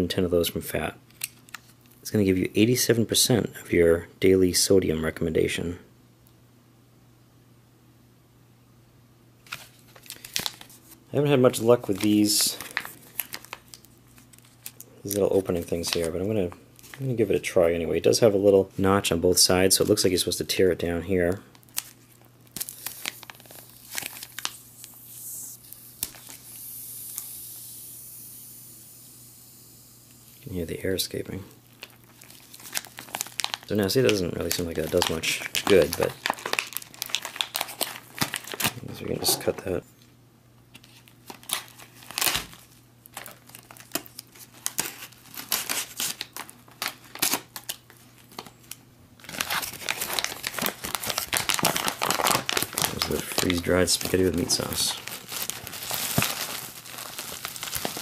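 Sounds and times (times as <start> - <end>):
foil pouch being torn open: 9.5 - 10.8, 11.9 - 16.1, 21.6 - 26.4, 31.8 - 38.8, 40.8 - 58.0
air hissing from pouch: 24.6 - 30.4.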